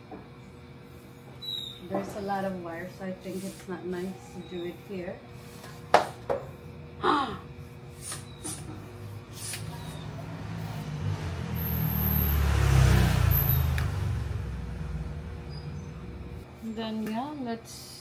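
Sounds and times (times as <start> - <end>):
vehicle passing: 8.7 - 16.5.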